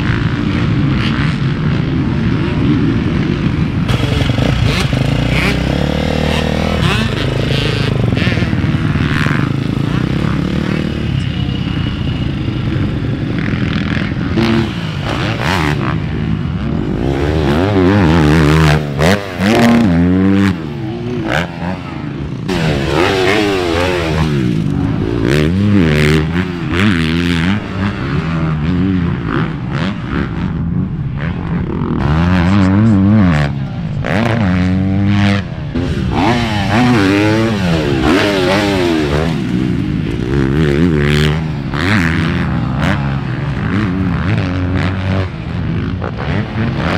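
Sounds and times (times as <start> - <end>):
motocross bike engines revving: 0.0 - 46.9.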